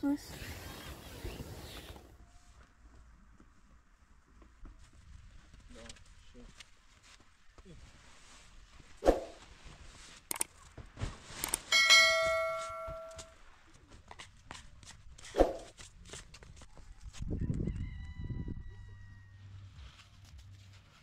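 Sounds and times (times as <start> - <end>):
metal struck and ringing: 11.7 - 13.3
faint ringing tone: 11.7 - 13.4.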